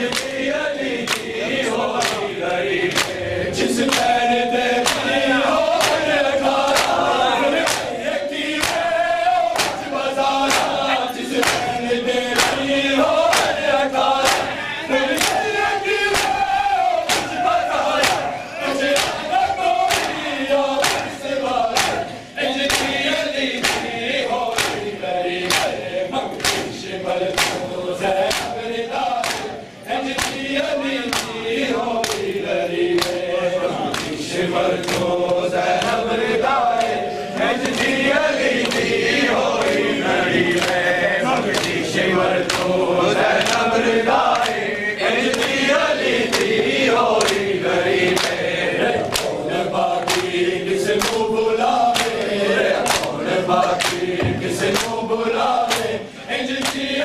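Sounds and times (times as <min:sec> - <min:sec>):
men chanting in unison: 0:00.0 - 0:57.0
chest beating slaps: 0:04.8 - 0:07.0, 0:08.6 - 0:08.9, 0:09.5 - 0:09.9, 0:17.0 - 0:23.0.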